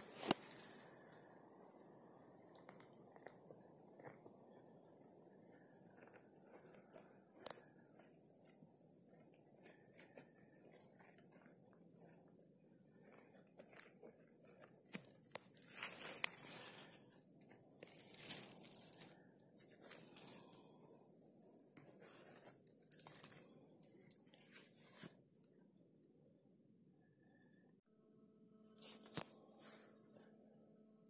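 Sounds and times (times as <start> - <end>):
rustling of dry needles: 0.0 - 1.6, 2.5 - 25.2
small twigs crackling: 0.0 - 1.6, 2.3 - 25.1.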